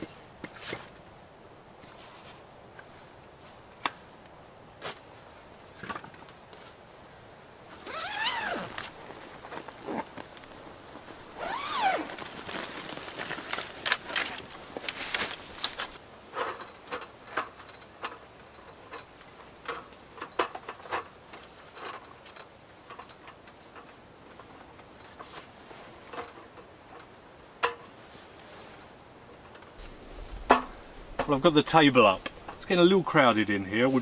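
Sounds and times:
zip: 7.7s - 10.3s, 11.4s - 13.4s
bag rustling: 7.7s - 16.0s, 29.8s - 33.2s.

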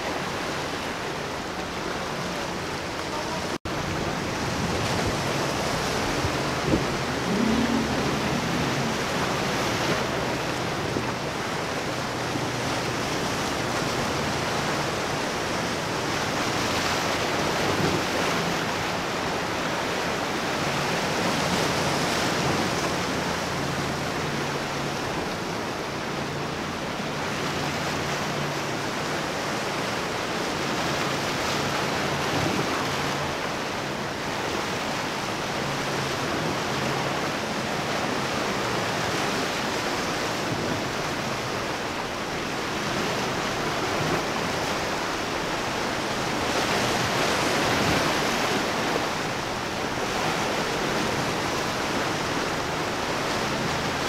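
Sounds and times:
waves breaking: 0.0s - 54.0s
low hum: 5.5s - 10.8s.

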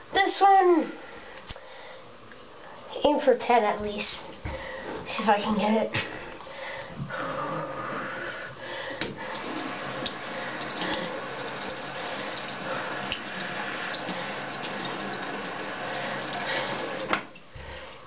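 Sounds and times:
tap water running into sink: 9.0s - 17.5s.

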